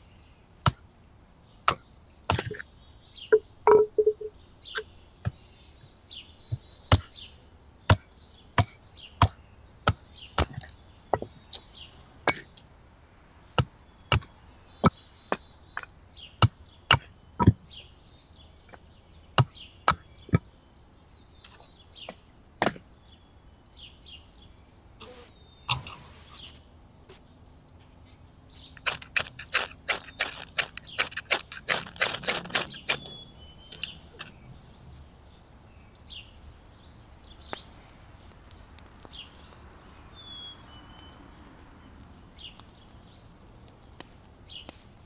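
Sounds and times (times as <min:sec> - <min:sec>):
small birds chirping: 0:00.0 - 0:45.0
hand tool striking wood: 0:28.8 - 0:33.2.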